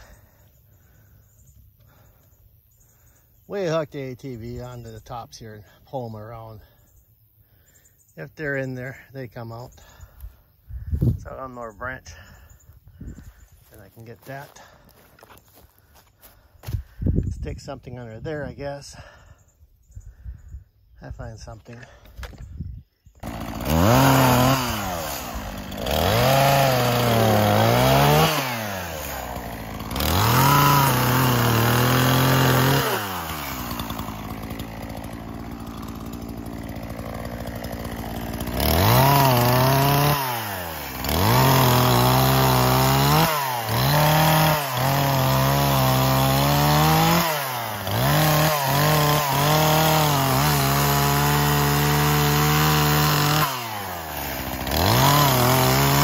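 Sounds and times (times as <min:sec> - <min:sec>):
chainsaw cutting log: 0:23.2 - 0:56.0.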